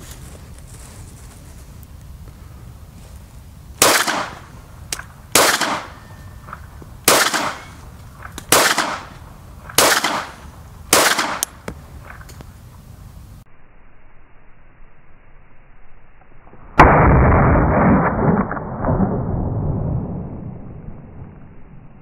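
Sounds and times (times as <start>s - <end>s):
pistol shots: 3.8s - 4.4s, 5.3s - 6.0s, 7.0s - 7.8s, 8.4s - 11.5s.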